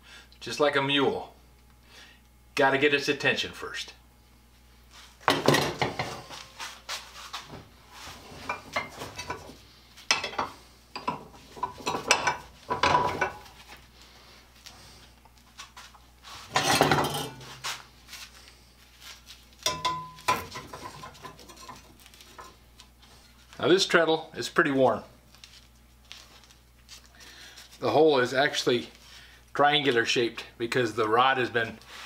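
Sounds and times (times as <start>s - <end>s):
iron tools clanking and scraping: 5.3s - 6.6s, 8.1s - 13.6s, 16.4s - 17.7s, 19.7s - 22.6s
struck metal ringing: 19.7s - 20.3s.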